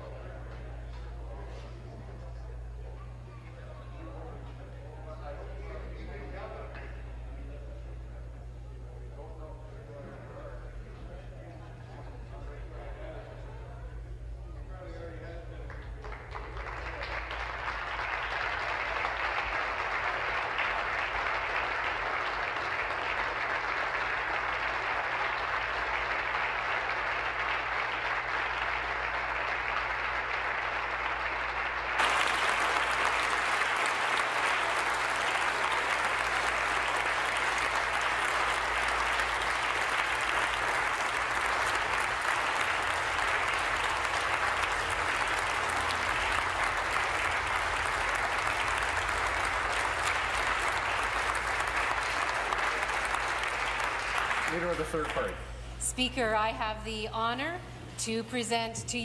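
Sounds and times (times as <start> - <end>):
crowd applauding: 0.0 - 7.6, 15.2 - 55.5.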